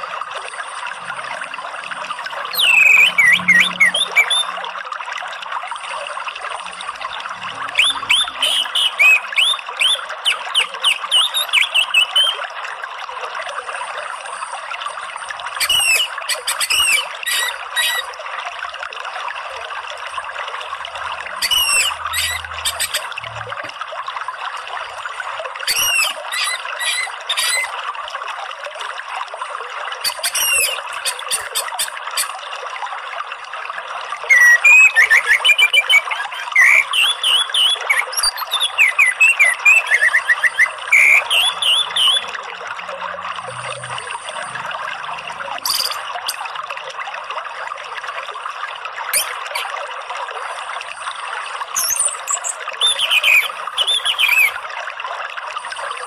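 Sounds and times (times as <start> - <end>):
running water: 0.0 - 56.0
bird singing: 2.5 - 4.6, 7.8 - 12.4, 21.4 - 23.4, 34.3 - 42.3, 51.8 - 54.6.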